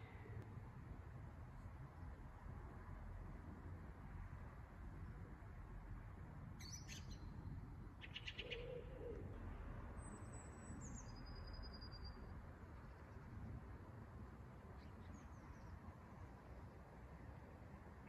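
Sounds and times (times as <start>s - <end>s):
faint low outdoor rumble: 0.0s - 18.0s
songbird calls: 8.0s - 9.3s.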